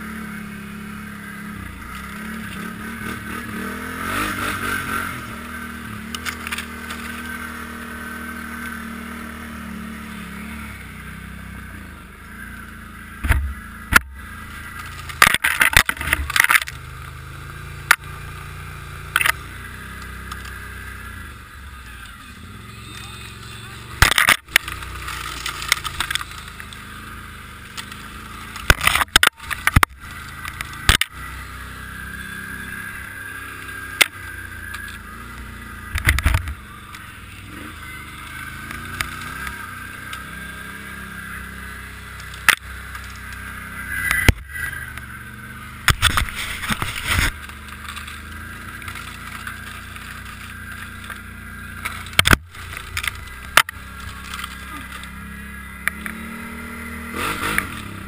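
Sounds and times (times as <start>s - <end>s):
atv engine whining: 0.0s - 58.0s
branches scraping and snapping: 1.6s - 9.4s, 13.2s - 17.2s, 19.0s - 20.8s, 24.0s - 37.6s, 38.2s - 45.2s, 45.8s - 58.0s.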